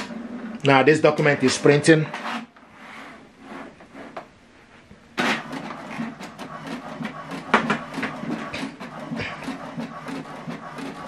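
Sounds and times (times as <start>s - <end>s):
printer clicks and clatter: 5.2s - 11.0s
printer paper-feed whirr: 5.2s - 11.0s.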